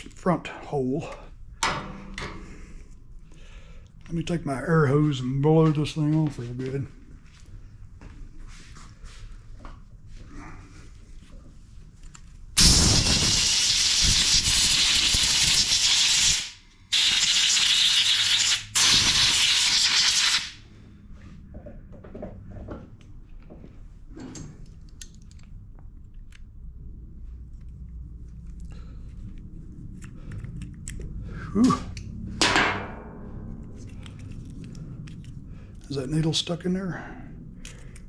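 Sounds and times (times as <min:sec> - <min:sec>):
compressed air blasting: 0:12.6 - 0:20.6.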